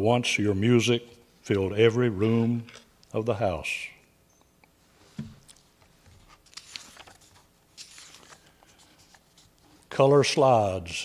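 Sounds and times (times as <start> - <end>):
paper pages turning: 5.2 - 9.9
faint clicks and crinkles: 5.4 - 9.9.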